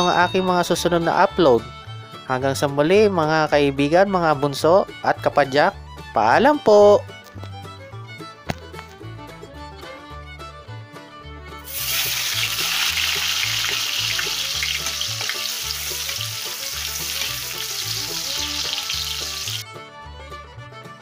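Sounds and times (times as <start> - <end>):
hotdogs sizzling in hot oil: 11.6 - 19.6.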